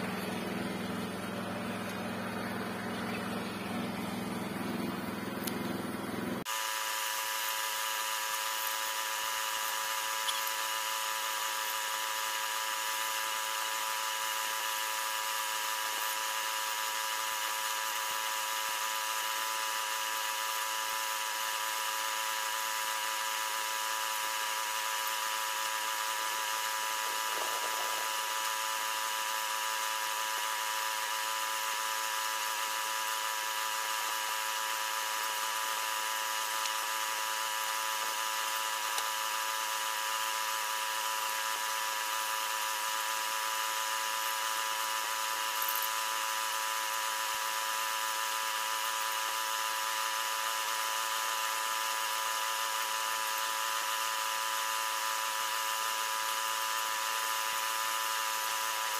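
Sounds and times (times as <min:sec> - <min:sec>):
air spray gun hissing: 0:00.0 - 0:19.7, 0:20.4 - 0:45.7.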